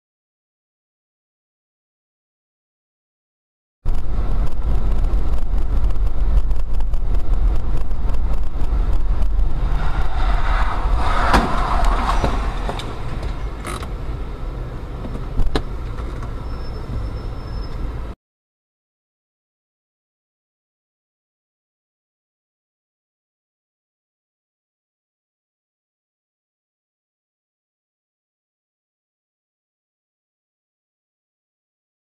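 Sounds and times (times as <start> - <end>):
car interior road noise: 3.9 - 18.2
rush of noise: 3.9 - 18.2.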